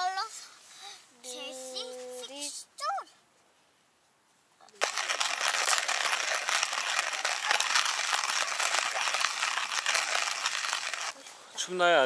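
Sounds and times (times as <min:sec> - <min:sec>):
hand coffee grinder crunching: 0:04.8 - 0:11.2.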